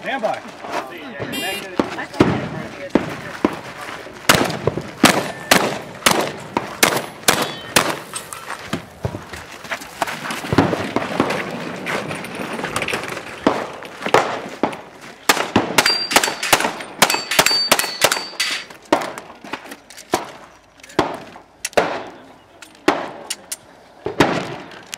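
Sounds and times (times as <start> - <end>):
rapid gunfire: 4.3 - 8.0
high ringing tones: 15.8 - 18.7.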